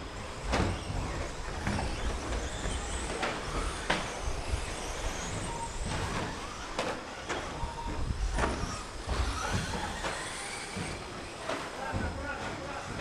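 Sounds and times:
electric motors whining: 0.0 - 13.0
toy trucks knocking on track: 0.4 - 12.3.

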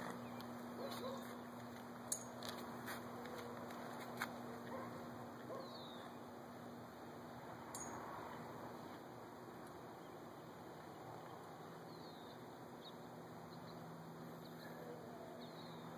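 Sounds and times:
steady low hum: 0.0 - 15.9.

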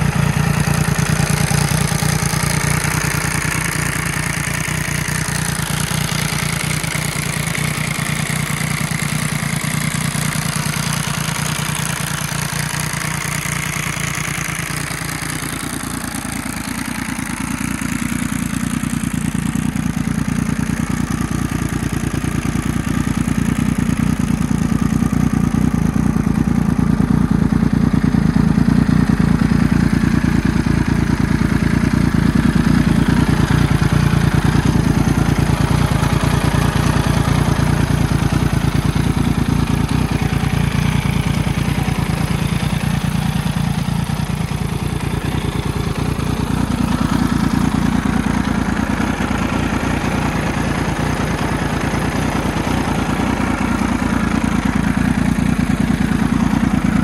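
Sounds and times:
motorcycle engine idling: 0.0 - 57.0.

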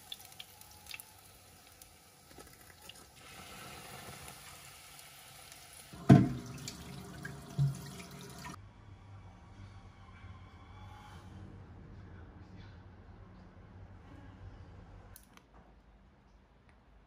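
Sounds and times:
cutlets sizzling in hot oil: 0.0 - 6.1.

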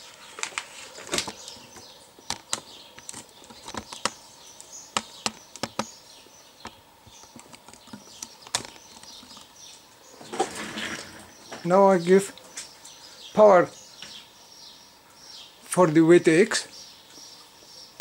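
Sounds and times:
faint bird chirps: 0.0 - 18.0
equipment clicking and tapping: 1.2 - 4.2, 4.9 - 5.9, 6.6 - 9.5.

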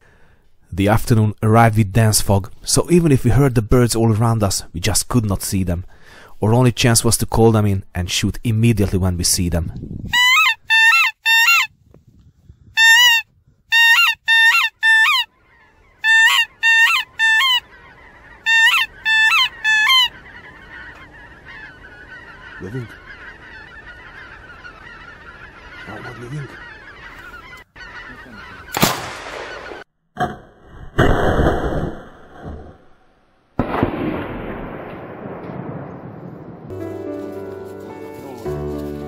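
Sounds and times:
goose call honks: 10.1 - 11.7, 12.8 - 29.0
loud shotgun shot: 28.7 - 29.8, 33.6 - 36.7.

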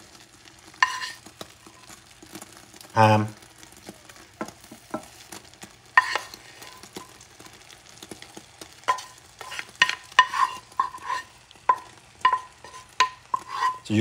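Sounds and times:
egg sizzling in a skillet: 0.0 - 14.0
wooden spatula knocking on metal pan: 4.4 - 5.2, 8.9 - 13.8.

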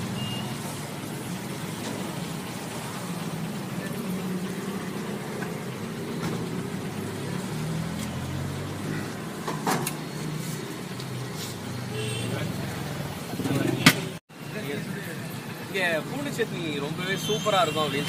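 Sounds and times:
traffic engine hum: 0.0 - 18.0.

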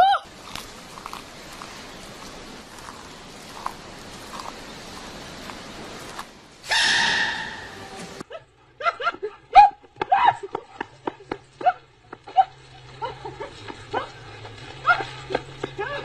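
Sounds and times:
loud drawn-out animal cry: 6.6 - 8.0
small dog yipping and whining: 6.7 - 7.8.

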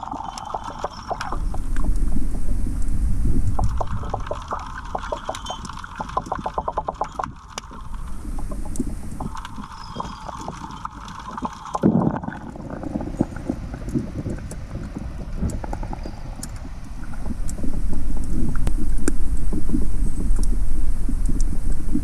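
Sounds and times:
low rumble: 0.0 - 22.0.

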